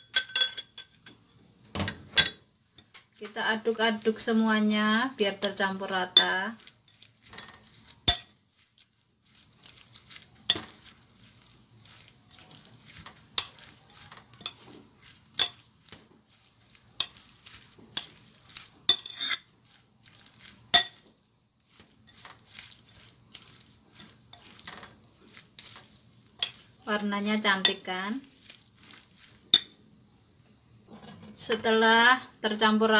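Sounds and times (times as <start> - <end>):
spoon clinking against glass: 0.0 - 1.2, 20.8 - 21.0
wet rustling of vegetables: 2.8 - 29.8.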